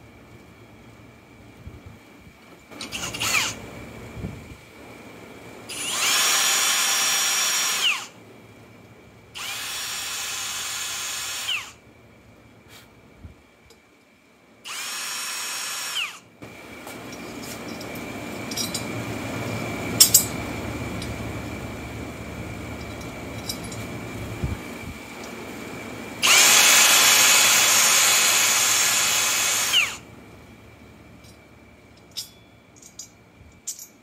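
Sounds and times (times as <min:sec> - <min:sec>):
drill boring through metal: 0:02.8 - 0:03.6, 0:05.7 - 0:08.2, 0:09.4 - 0:11.8, 0:14.7 - 0:16.2, 0:26.2 - 0:30.0.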